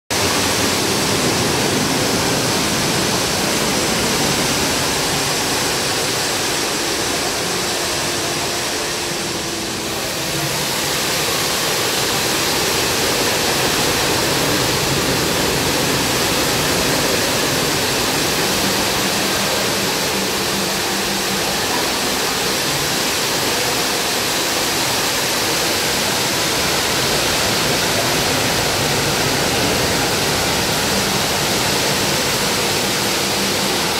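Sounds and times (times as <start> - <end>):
falling water rushing and splashing: 0.1 - 33.9.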